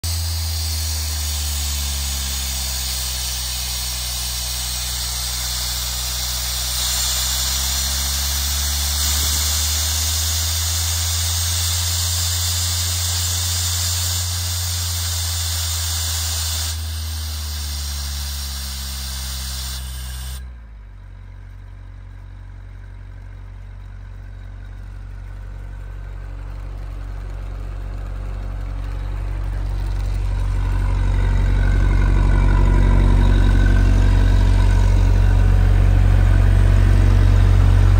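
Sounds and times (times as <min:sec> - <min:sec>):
compressed air hissing: 0:00.0 - 0:20.4, 0:30.6 - 0:37.9
diesel air compressor running: 0:00.0 - 0:20.6, 0:23.4 - 0:37.9.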